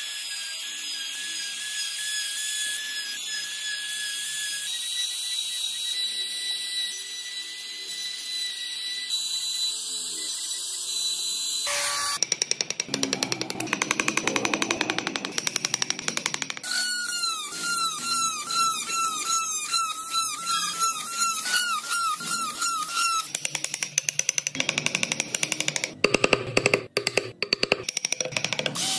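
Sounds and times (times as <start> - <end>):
router whining cutting wood: 0.2 - 12.2, 12.9 - 23.3.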